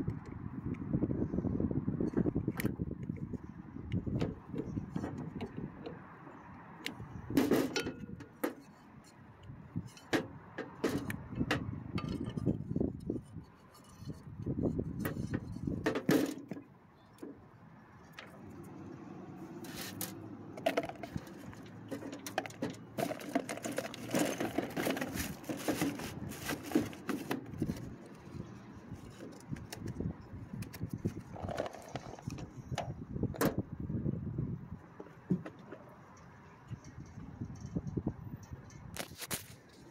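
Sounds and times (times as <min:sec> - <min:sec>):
metal clicks and rattles: 0:19.9 - 0:28.0.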